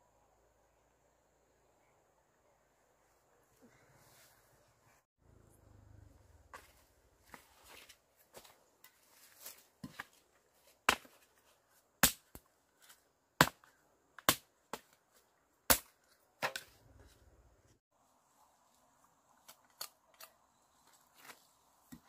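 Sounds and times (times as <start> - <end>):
tool chopping bamboo and earth: 7.4 - 16.8.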